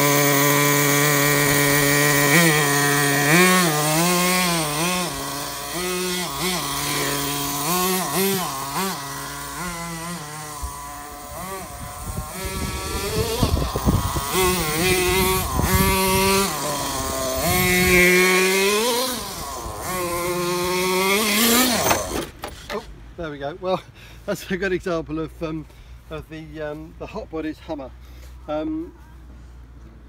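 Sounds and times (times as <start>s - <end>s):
model car engine revving: 0.0s - 22.9s.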